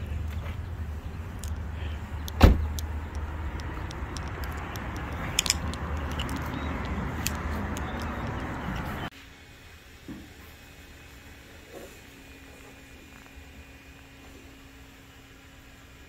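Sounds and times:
car engine rumble: 0.0s - 9.1s
light clicks and rattles: 1.3s - 8.8s
loud thump: 2.4s - 2.7s.

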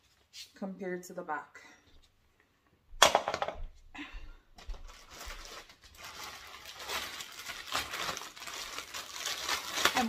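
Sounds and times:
plastic packaging crinkling: 4.6s - 10.0s.

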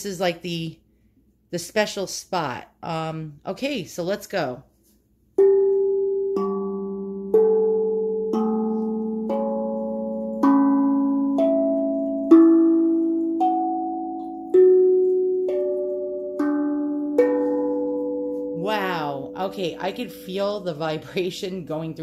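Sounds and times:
tongue drum notes ringing: 5.3s - 22.0s.

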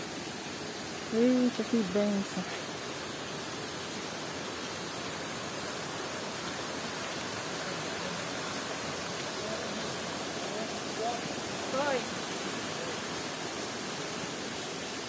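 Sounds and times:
waterfall rushing: 0.0s - 15.0s.

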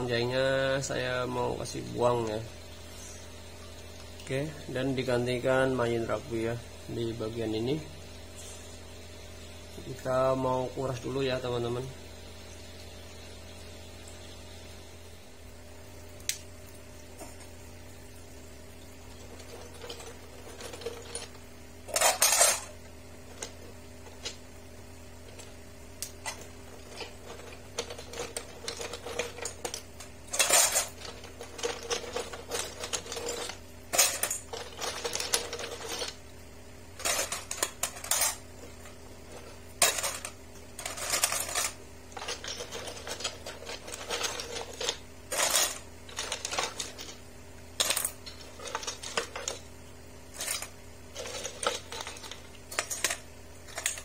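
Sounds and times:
steady low hum: 0.0s - 54.0s
coral rubble clattering against glass: 19.1s - 24.4s, 25.2s - 36.2s, 37.0s - 47.2s, 47.8s - 49.7s, 50.3s - 54.0s.

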